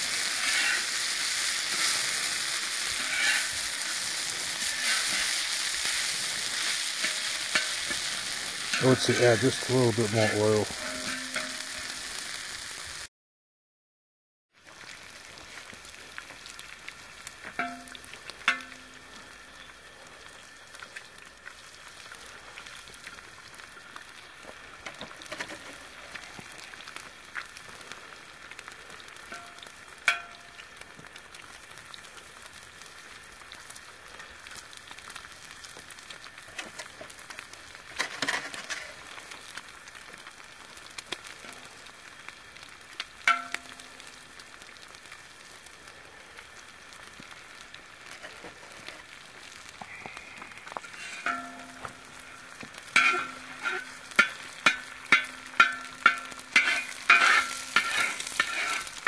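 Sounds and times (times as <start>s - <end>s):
food sizzling in oil: 0.0s - 13.1s, 14.5s - 59.0s.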